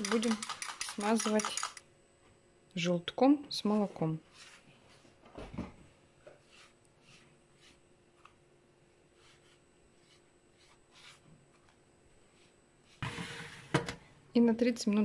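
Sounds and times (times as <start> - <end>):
pastry brush strokes: 4.2 - 5.1, 6.2 - 13.0
metal baking tray scraping: 13.0 - 13.8.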